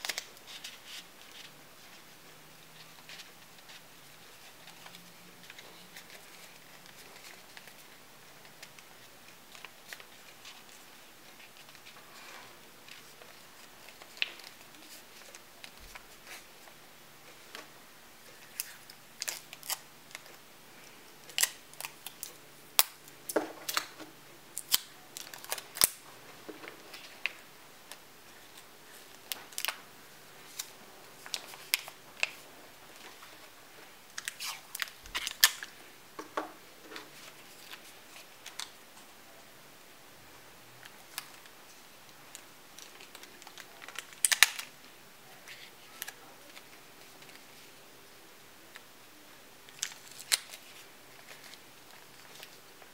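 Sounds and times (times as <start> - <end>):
stiff paper crinkling and clicking: 42.3 - 44.7.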